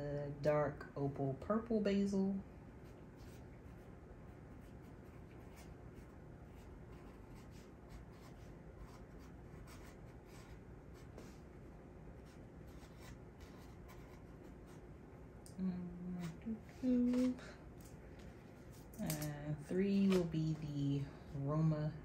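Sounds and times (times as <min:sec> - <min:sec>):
marker pen scratching: 0:02.8 - 0:11.4, 0:12.2 - 0:14.8.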